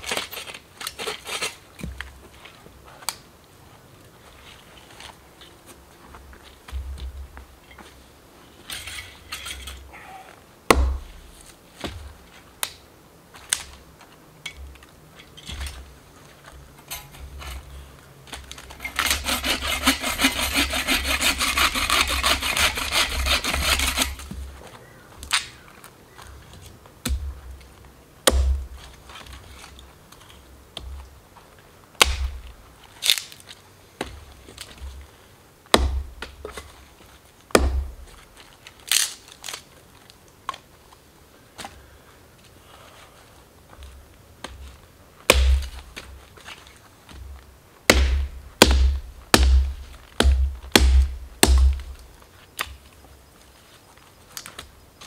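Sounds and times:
wood knocking and cracking: 10.7 - 11.2
saw cutting through wood: 18.8 - 24.3.

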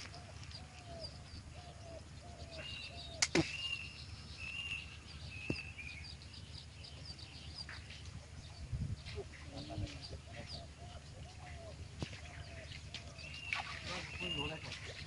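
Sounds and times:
short lower bird calls: 0.0 - 6.0
birds chirping: 0.0 - 15.0.

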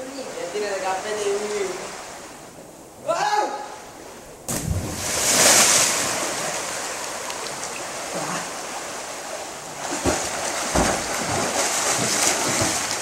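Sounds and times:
river water rushing: 0.0 - 3.0, 3.6 - 13.0
splash of person jumping in water: 4.5 - 6.7, 9.8 - 13.0.

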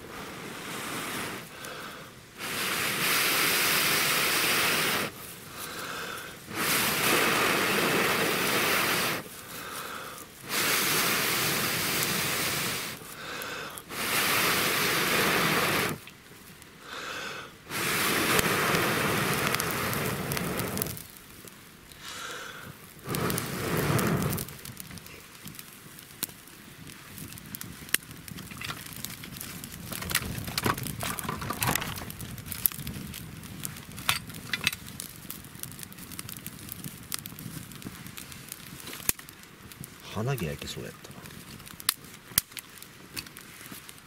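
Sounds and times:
person blowing hard: 17.0 - 21.0.

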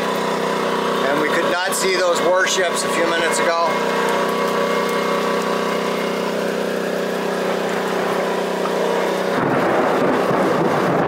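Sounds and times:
steady low hum: 0.0 - 11.0
heavy rain: 3.4 - 11.0
fluttering wind noise: 4.2 - 11.0
gusting wind: 7.8 - 11.0.

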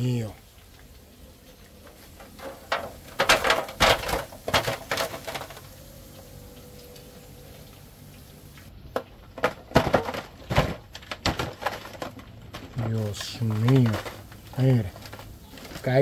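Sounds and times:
frying oil sizzling: 0.0 - 9.0.

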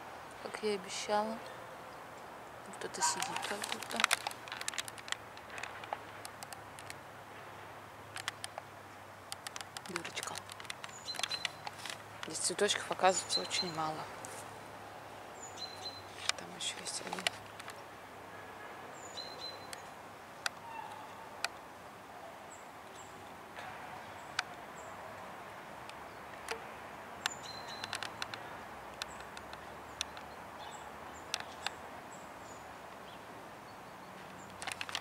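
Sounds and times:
sharp clicks: 3.0 - 7.0, 8.1 - 8.7, 9.3 - 13.9, 16.2 - 17.8, 27.2 - 30.4, 31.2 - 31.8, 34.3 - 35.0.

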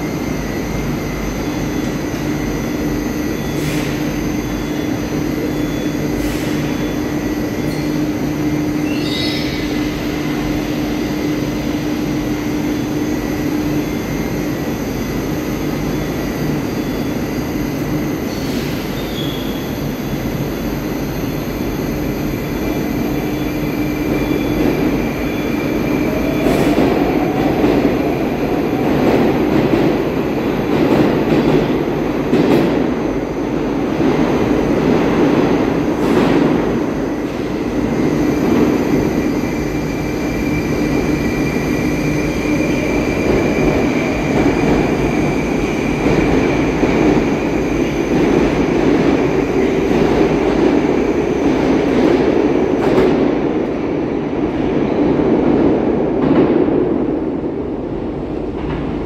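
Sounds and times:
standing train humming: 0.0 - 59.0
train wheels clattering and squealing: 3.4 - 8.1, 8.7 - 10.4.

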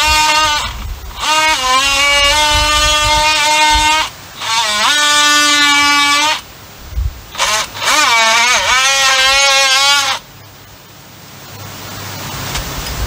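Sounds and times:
oscillating multi-tool cutting wood: 0.0 - 6.5, 7.3 - 10.3.

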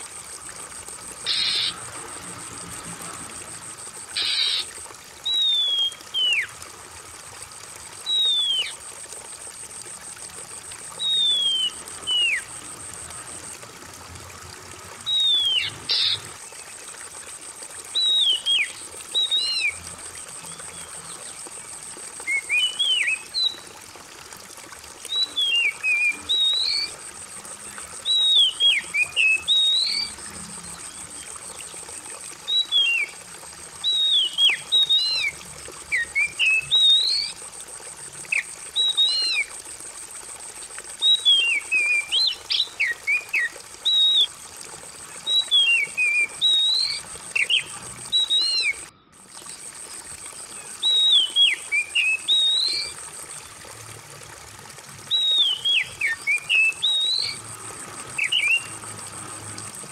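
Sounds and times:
trickling water: 0.0 - 59.9
bird singing whistled phrases: 5.3 - 6.5, 8.0 - 8.8, 11.0 - 12.4, 15.1 - 16.2, 18.0 - 19.8, 22.3 - 23.6, 25.1 - 26.9, 28.1 - 30.2, 32.5 - 33.1, 33.8 - 35.4, 36.0 - 37.4, 38.3 - 39.5, 41.0 - 44.3, 45.2 - 48.9, 50.8 - 53.0, 55.1 - 57.4, 58.2 - 58.7.

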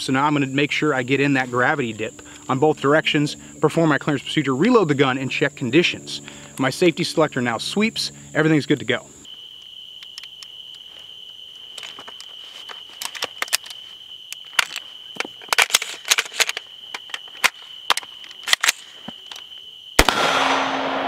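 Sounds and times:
rifle metallic clicks and clacks: 14.6 - 19.4.

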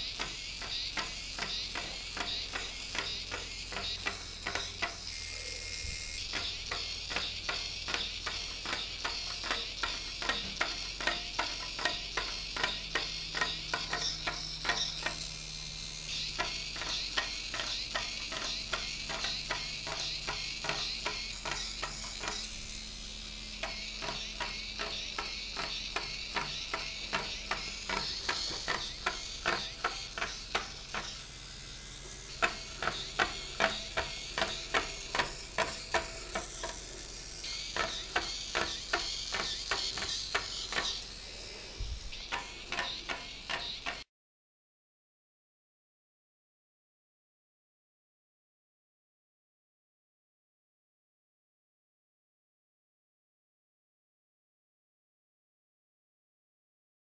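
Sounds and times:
plastic legs clicking: 0.0 - 5.1, 5.8 - 44.0
small gear motor whirring: 0.0 - 44.0.

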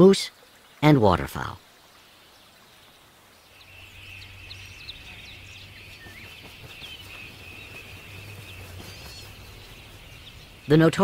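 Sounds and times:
low hum: 3.7 - 11.0.

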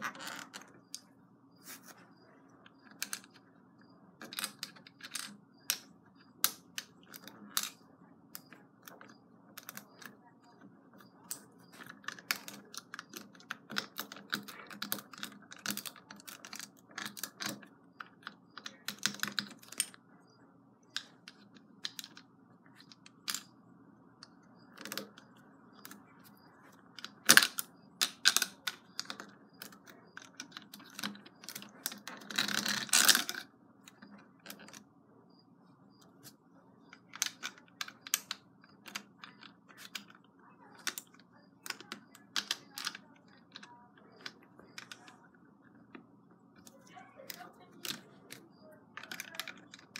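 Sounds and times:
plastic bricks clicking: 2.6 - 3.4, 4.2 - 20.0, 20.9 - 23.5, 24.2 - 34.9, 36.0 - 49.9
rattle of plastic bricks: 11.3 - 20.0, 26.8 - 34.8, 36.2 - 46.7, 47.3 - 49.9.

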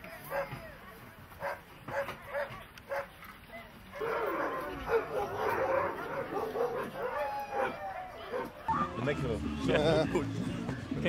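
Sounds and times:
dogs barking and yelping: 1.4 - 8.7.

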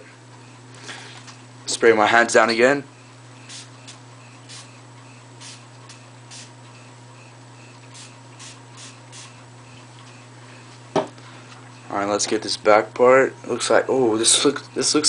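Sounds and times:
steady low hum: 0.0 - 15.0
spray bottle spritzes: 3.5 - 4.7, 5.4 - 6.5, 7.9 - 9.4.

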